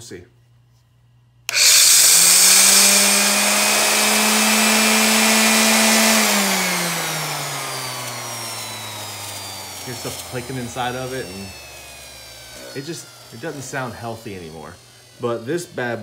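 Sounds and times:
orbit sander whining: 1.5 - 16.0.

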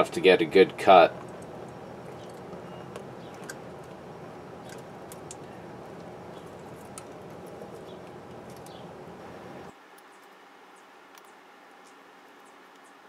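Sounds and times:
background hum: 0.0 - 13.0
small clicks of wires: 4.6 - 5.5.

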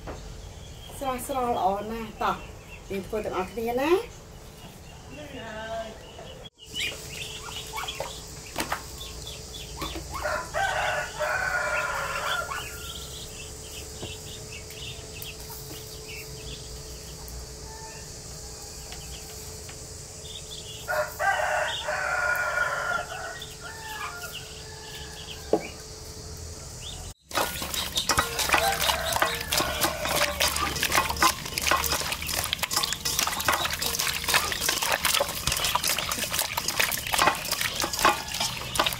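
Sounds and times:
rooster crowing: 10.1 - 13.3, 17.6 - 19.4, 20.8 - 25.9, 26.9 - 32.9, 37.2 - 38.9.

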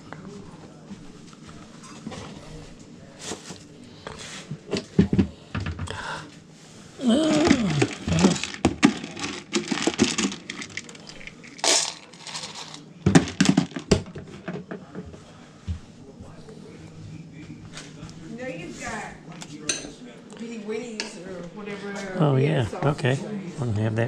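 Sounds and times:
dog food rattling in metal bowl: 7.8 - 14.0.

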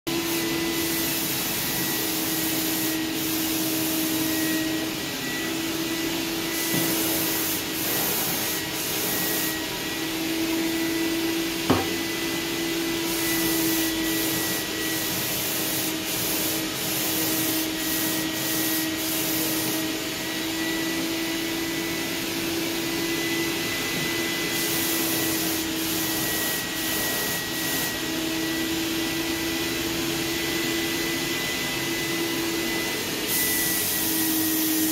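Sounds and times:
spray gun hissing: 0.1 - 10.7, 11.5 - 20.6, 22.3 - 28.4, 33.1 - 34.9.

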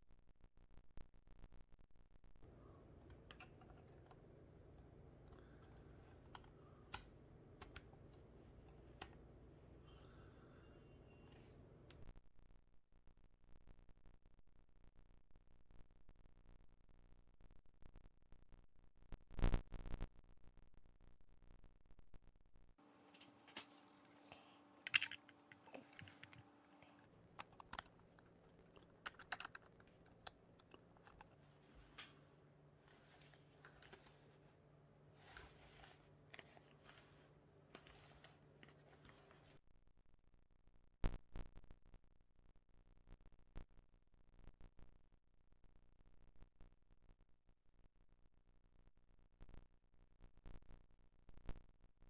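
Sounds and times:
handling plastic building pieces: 2.5 - 10.6, 23.0 - 39.6
plastic building pieces clicking: 24.8 - 31.4.

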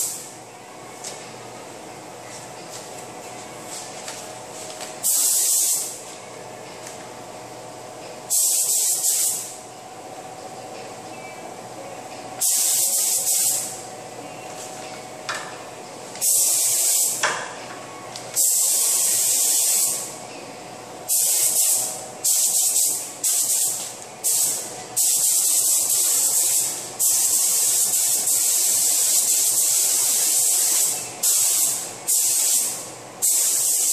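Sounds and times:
paint spray gun hissing: 5.0 - 5.9, 8.3 - 9.5, 12.4 - 13.8, 16.2 - 17.2, 18.4 - 20.1, 21.1 - 33.9.

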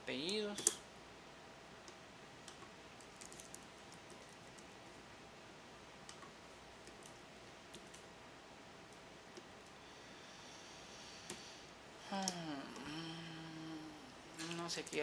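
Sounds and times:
low room hiss: 0.0 - 15.0.

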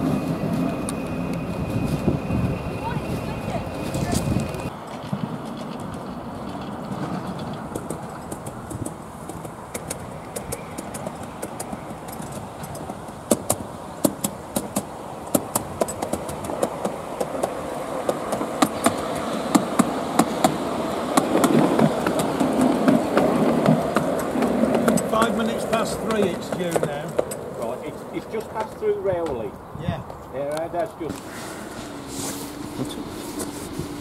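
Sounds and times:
miniature steam locomotive running: 0.0 - 29.1, 30.4 - 34.0.

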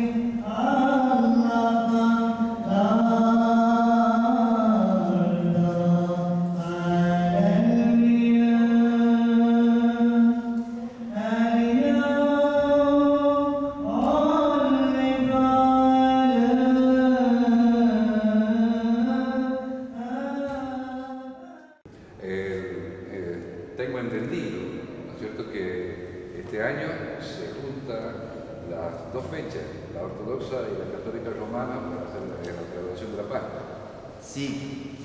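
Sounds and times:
liturgical chant singing: 0.0 - 22.6.

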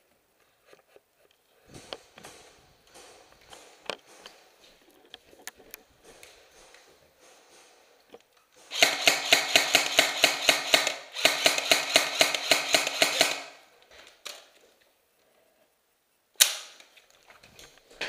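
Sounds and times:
airsoft rifle full-auto bursts: 8.7 - 13.6.

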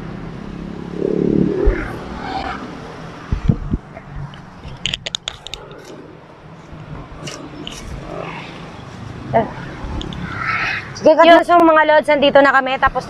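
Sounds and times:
sharp clicks and crackles: 3.9 - 6.1.

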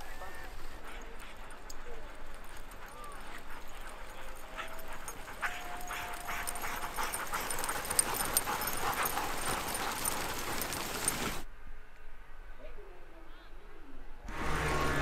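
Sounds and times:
sled dogs paws pattering on snow: 0.0 - 11.4.

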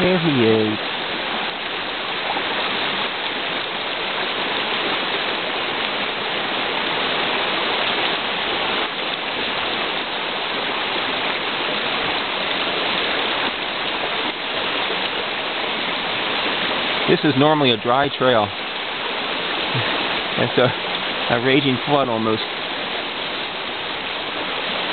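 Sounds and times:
water rushing over rocks: 0.0 - 24.9.

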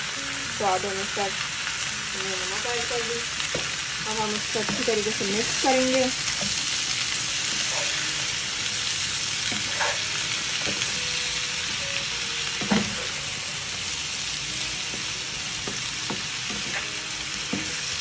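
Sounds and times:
food sizzling in hot oil: 0.0 - 18.0
spatula scraping and knocking pan: 9.5 - 10.9, 12.6 - 13.2, 14.9 - 17.8.

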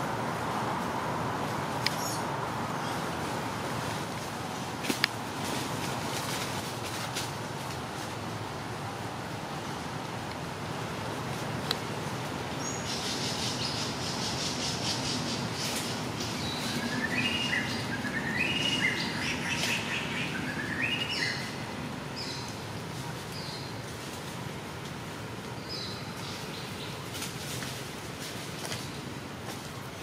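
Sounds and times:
background hiss: 0.0 - 30.0
birds calling: 12.6 - 22.7.

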